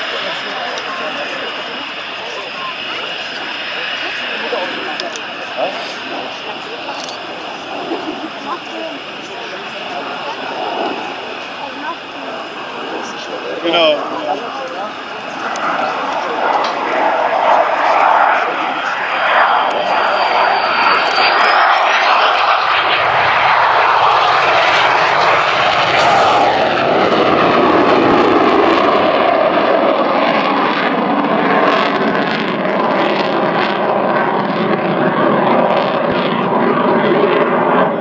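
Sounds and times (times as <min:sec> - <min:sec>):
jet engine roaring: 0:00.0 - 0:38.0
high whine rising in pitch: 0:18.0 - 0:27.8.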